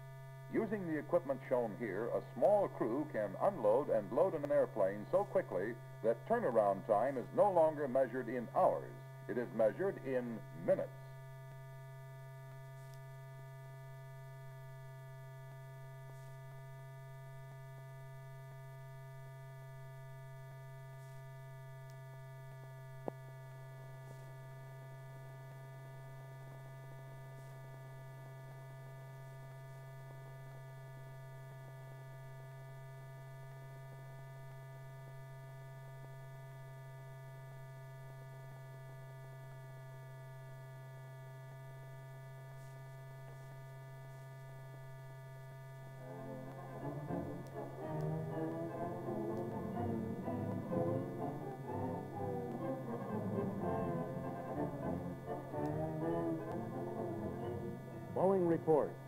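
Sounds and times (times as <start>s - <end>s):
faint steady high tones: 0.0s - 29.3s, 41.6s - 59.0s
steady electrical hum: 0.0s - 59.0s.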